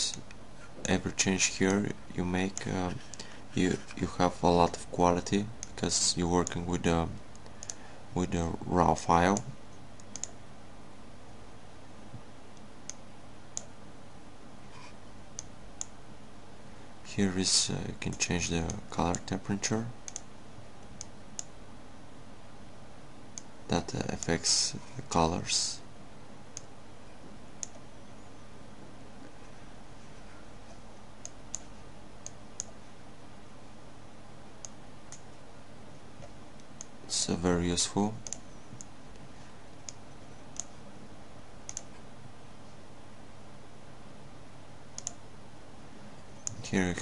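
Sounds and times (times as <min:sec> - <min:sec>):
faint steady hiss: 0:00.0 - 0:47.0
low background hum: 0:00.0 - 0:47.0
computer mouse clicks: 0:07.3 - 0:07.8, 0:09.4 - 0:10.4, 0:20.1 - 0:20.3, 0:38.2 - 0:38.9, 0:41.7 - 0:41.9, 0:45.0 - 0:45.2.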